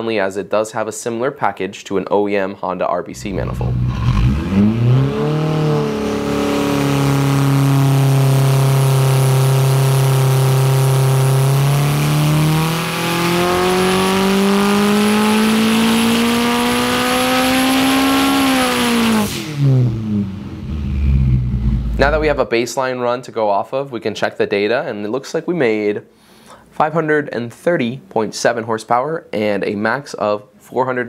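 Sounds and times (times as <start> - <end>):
engine revving on dyno: 3.2 - 22.4
high turbo whistle: 19.2 - 22.4.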